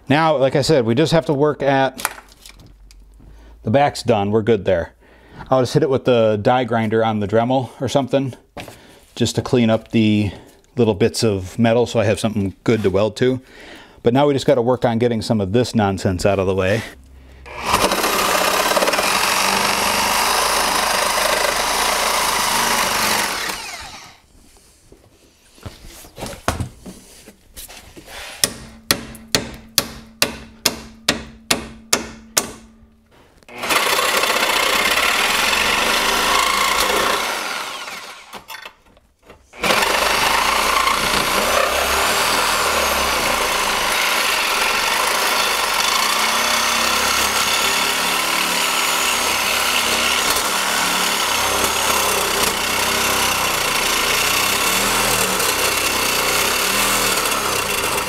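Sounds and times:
reciprocating saw cutting steel: 0:17.4 - 0:24.2, 0:33.5 - 0:38.6, 0:39.6 - 0:58.0.

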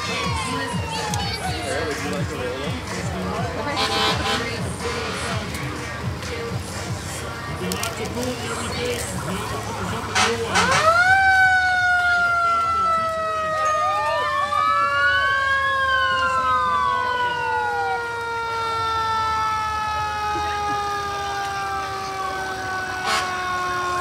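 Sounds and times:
wailing siren: 0:00.0 - 0:02.8, 0:10.5 - 0:24.0
fire truck siren winding down: 0:00.0 - 0:04.5, 0:08.7 - 0:24.0.

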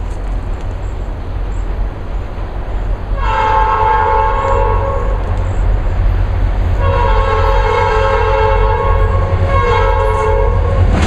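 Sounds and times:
steady low rumble: 0:00.0 - 0:07.8
locomotive air horn blasts: 0:03.2 - 0:05.3, 0:06.8 - 0:11.0.

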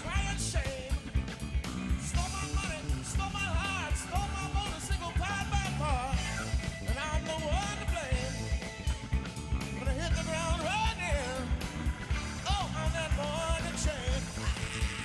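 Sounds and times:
bass: 0:00.0 - 0:15.0
drums keeping steady beat: 0:00.0 - 0:15.0.

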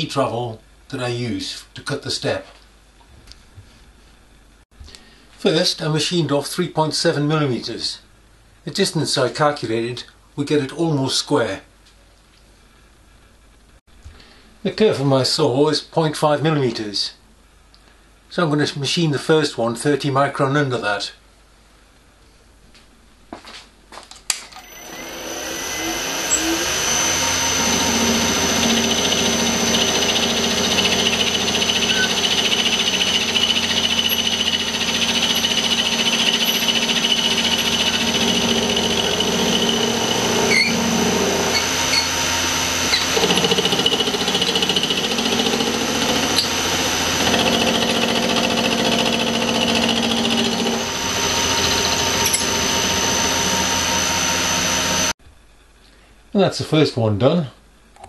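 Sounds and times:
milling machine whining: 0:24.6 - 0:55.1.

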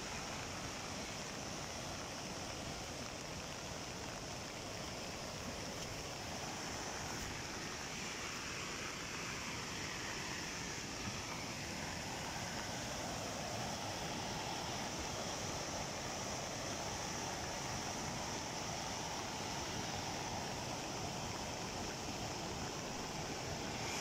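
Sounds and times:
stream rushing over rocks: 0:00.0 - 0:24.0.

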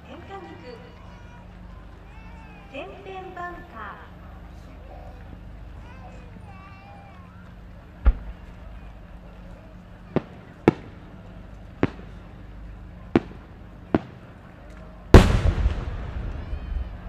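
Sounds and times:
deep firework boom: 0:08.0 - 0:08.5, 0:15.1 - 0:17.0
firework cracks: 0:08.0 - 0:08.8, 0:10.1 - 0:11.2, 0:11.8 - 0:12.4, 0:13.1 - 0:17.0.

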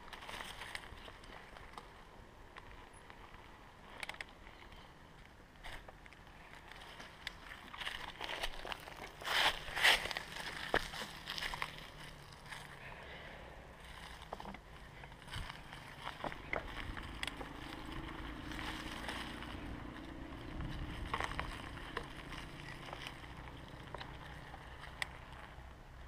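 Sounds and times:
bike rattling and clicking: 0:00.0 - 0:12.8, 0:13.8 - 0:26.0
tyres rolling over dirt: 0:05.6 - 0:25.9.

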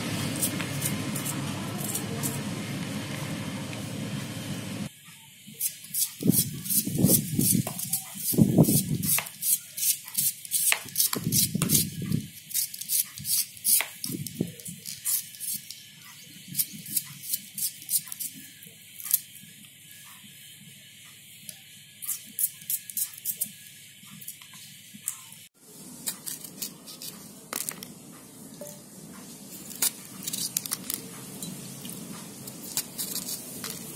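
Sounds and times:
knife slicing onion: 0:00.0 - 0:02.6, 0:05.6 - 0:19.3, 0:22.0 - 0:23.6, 0:26.0 - 0:27.8, 0:32.0 - 0:33.9.

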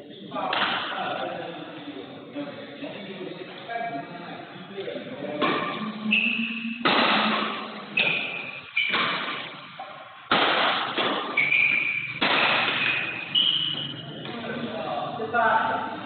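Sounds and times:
racket striking shuttlecock: 0:06.7 - 0:13.9
shoes squeaking on court floor: 0:07.9 - 0:10.0, 0:11.0 - 0:14.3.

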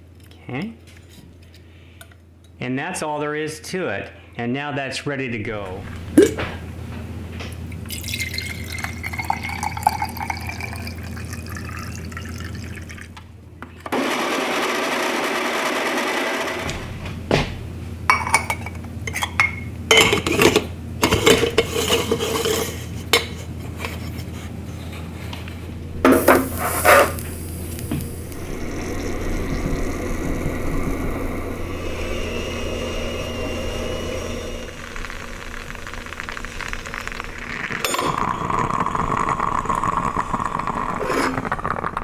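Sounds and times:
water pouring into metal pot: 0:07.8 - 0:13.2, 0:26.1 - 0:42.0
loud steady noise: 0:25.8 - 0:39.8.

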